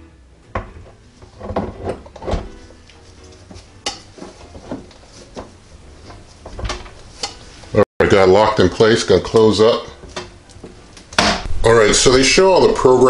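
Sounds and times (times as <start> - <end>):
metal pan clunks and scrapes: 0.6 - 2.6, 3.5 - 5.5.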